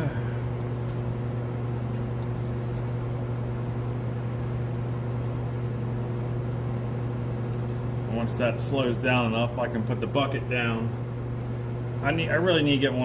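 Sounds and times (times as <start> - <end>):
electric hum: 0.0 - 13.0.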